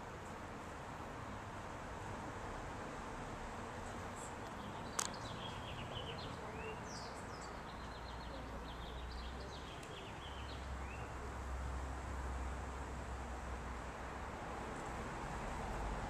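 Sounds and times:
small birds chirping: 3.8 - 11.4
sharp click: 4.9 - 5.2.

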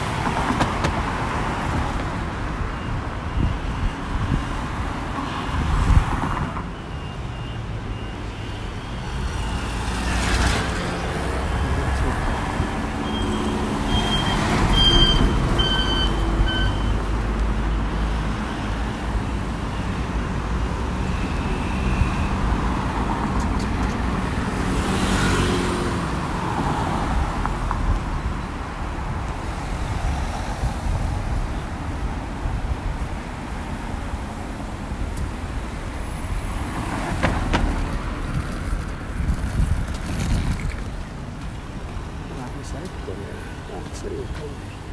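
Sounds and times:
traffic hum: 0.0 - 44.9
short high beeps: 13.0 - 17.0.

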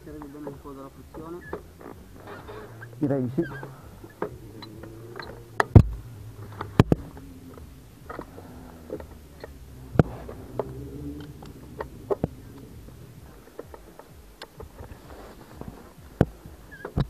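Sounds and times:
low steady hum: 0.0 - 17.0
harness buckle clicks and knocks: 3.6 - 15.0.

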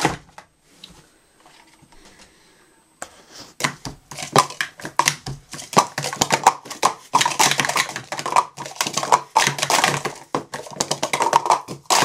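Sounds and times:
plastic cups clacking: 3.6 - 12.0.

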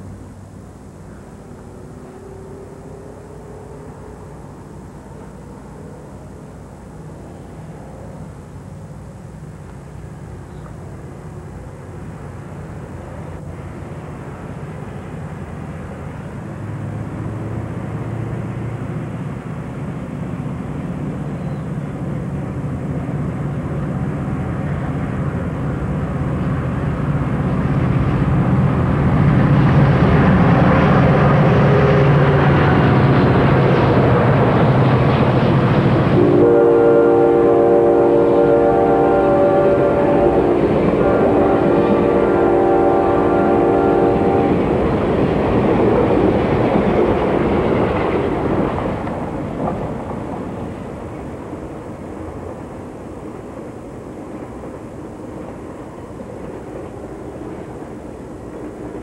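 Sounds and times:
diesel locomotives passing: 0.0 - 59.0
passenger cars rolling by: 0.0 - 59.0
train horn chord: 30.2 - 34.0, 36.0 - 44.8.

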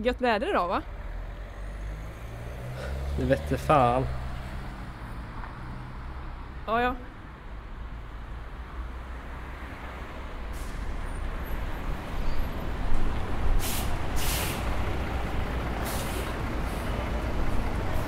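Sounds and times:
bus engine rumble: 0.0 - 18.0
air brakes hissing: 10.5 - 11.2, 13.5 - 14.8, 15.8 - 17.0.

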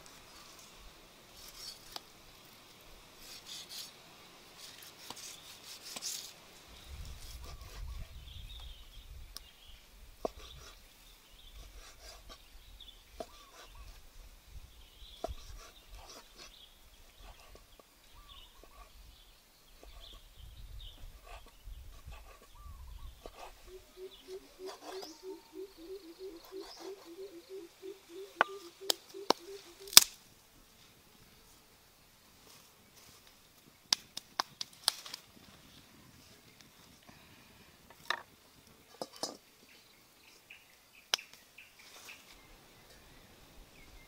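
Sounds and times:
faint bird calls: 11.4 - 14.1, 14.8 - 20.3, 21.0 - 30.0.

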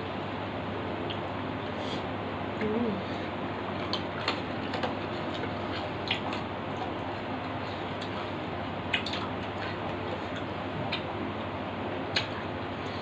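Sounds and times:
chewing and food handling smacks: 3.7 - 11.2, 12.0 - 12.5.

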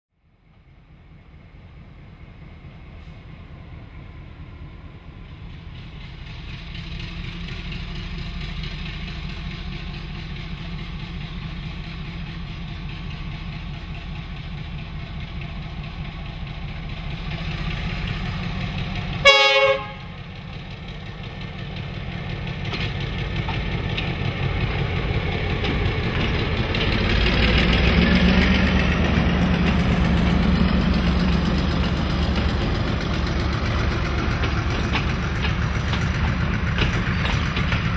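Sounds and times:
diesel locomotive rumbling: 0.2 - 37.9
passenger carriages rumbling past: 1.3 - 37.9
locomotive horn blast: 19.2 - 20.2.

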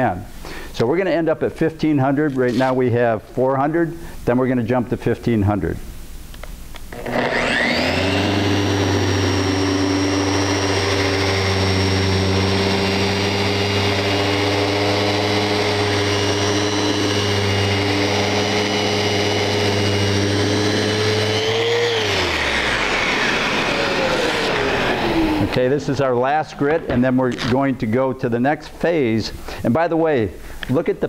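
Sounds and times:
orbital sander sanding wood: 6.9 - 27.8.

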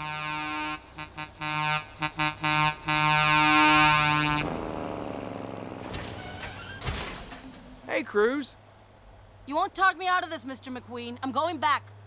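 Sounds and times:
deep truck horn honking: 0.0 - 4.8
truck road noise: 0.0 - 12.0.

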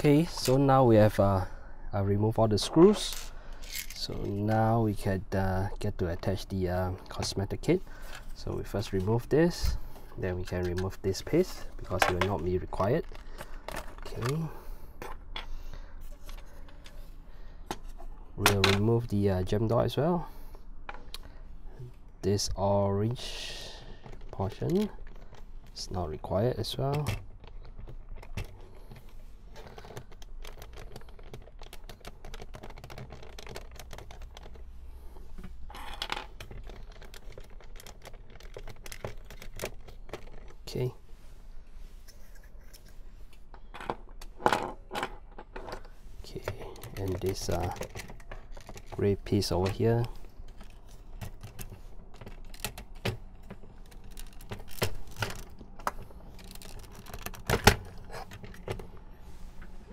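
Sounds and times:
hard plastic parts clicking: 10.6 - 17.0, 26.8 - 40.6, 43.4 - 59.8.

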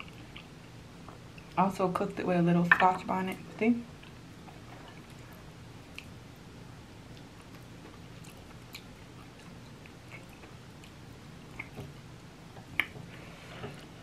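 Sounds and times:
chewing soft food: 0.0 - 1.6, 7.0 - 13.0.

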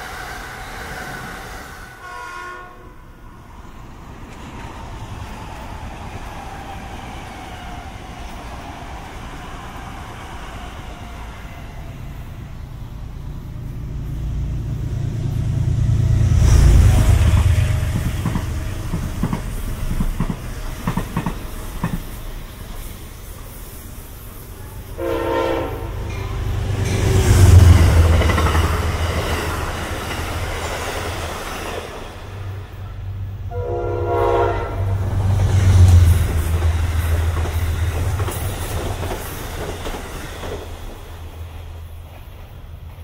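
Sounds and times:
passing train whine and rumble: 0.0 - 43.0
train horn: 1.9 - 3.3, 24.6 - 29.0, 33.5 - 36.1
train wheels clattering over joints: 17.2 - 22.9.

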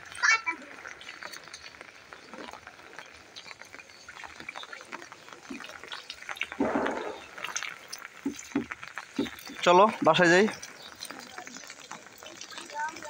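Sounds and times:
feet splashing in puddles: 0.0 - 13.0
rain on concrete: 0.0 - 13.0
rush of water: 0.0 - 13.0.

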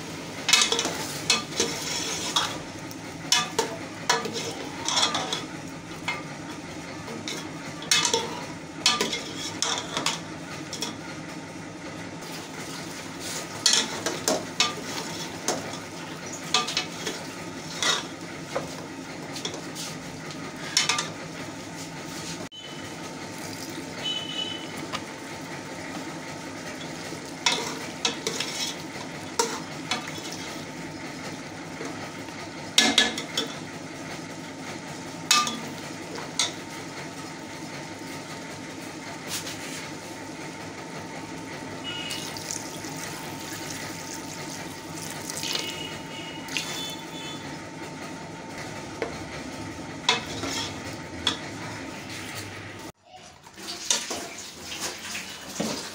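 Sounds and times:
metal spoon scraping a pot: 0.5 - 2.6, 4.1 - 5.5, 7.2 - 10.2, 27.5 - 30.6, 50.1 - 51.4.

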